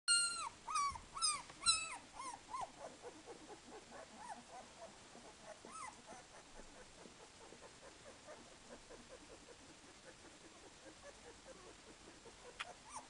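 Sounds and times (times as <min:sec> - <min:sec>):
puppies squealing and whimpering: 0:00.1 - 0:04.7, 0:05.5 - 0:06.9, 0:10.8 - 0:13.0.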